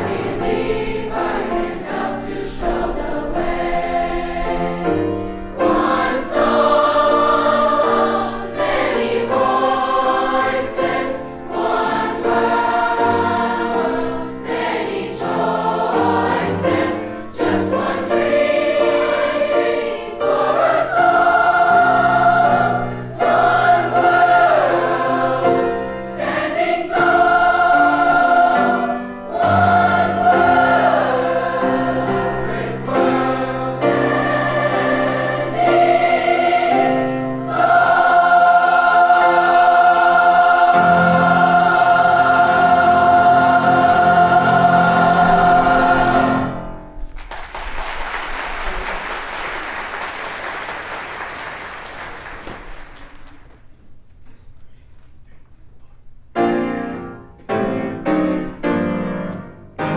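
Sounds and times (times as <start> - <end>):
children's chorus singing: 0.0 - 46.8.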